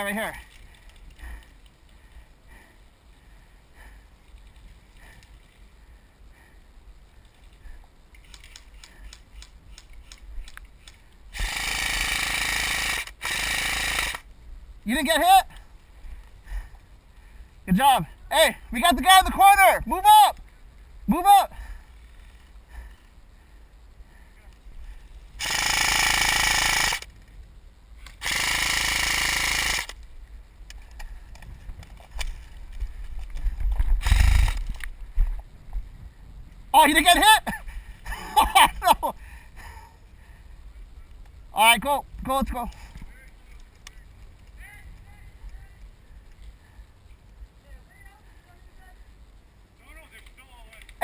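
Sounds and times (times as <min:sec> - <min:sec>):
faint ticks: 0:00.4 - 0:11.3, 0:21.7 - 0:25.2, 0:29.8 - 0:36.6, 0:41.0 - 0:41.4, 0:42.6 - 0:47.6
airsoft gun firing full auto: 0:11.4 - 0:14.2, 0:25.4 - 0:27.1, 0:28.2 - 0:30.0.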